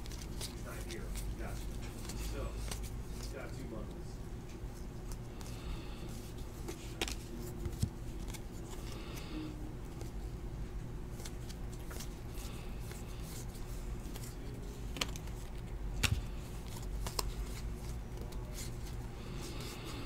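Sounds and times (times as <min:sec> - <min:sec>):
cardboard cards flipped by hand: 0:06.6 - 0:08.8, 0:11.1 - 0:12.2, 0:12.8 - 0:19.7.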